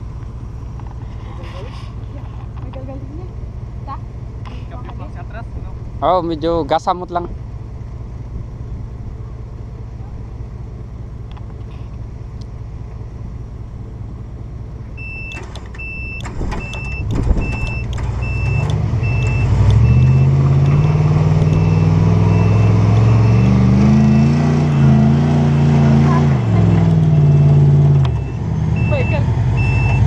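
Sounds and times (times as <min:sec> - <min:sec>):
truck engine idling and revving: 0:00.0 - 0:30.0
vehicle warning chime beeping: 0:15.0 - 0:25.1, 0:26.9 - 0:30.0
car door shutting: 0:15.2 - 0:19.8
clicks: 0:15.3 - 0:19.9.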